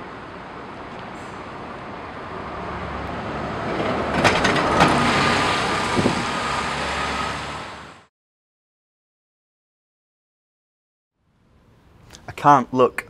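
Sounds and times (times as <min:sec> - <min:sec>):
bus driving past: 0:00.0 - 0:08.1
city street traffic: 0:00.0 - 0:08.1, 0:11.2 - 0:13.0.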